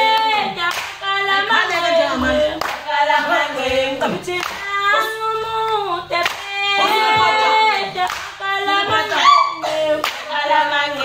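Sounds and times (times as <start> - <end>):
women and girls singing: 0.0 - 11.0
hand clapping: 0.1 - 1.0, 2.6 - 9.2, 10.0 - 10.3.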